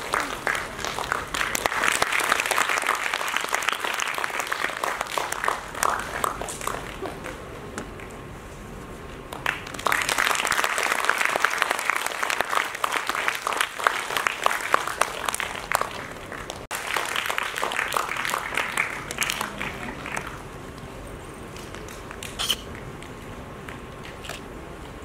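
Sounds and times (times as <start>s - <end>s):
audience applauding: 0.0s - 8.2s, 9.3s - 20.6s.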